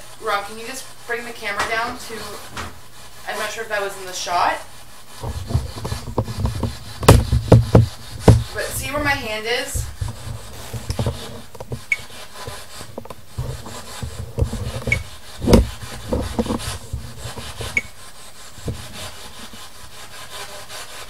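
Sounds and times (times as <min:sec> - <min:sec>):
knocks: 0:05.2 - 0:08.6, 0:13.4 - 0:17.9.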